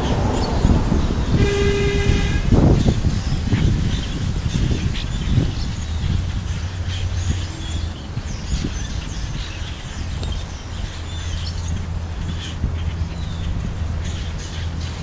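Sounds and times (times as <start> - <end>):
low rumble: 0.0 - 9.2
birds chirping and whistling: 0.0 - 15.0.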